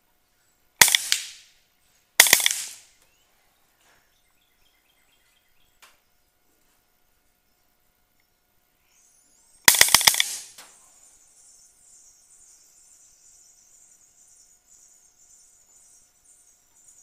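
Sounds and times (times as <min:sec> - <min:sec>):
air rifle rapid burst: 0:00.8 - 0:01.4, 0:02.2 - 0:02.8, 0:09.7 - 0:10.6.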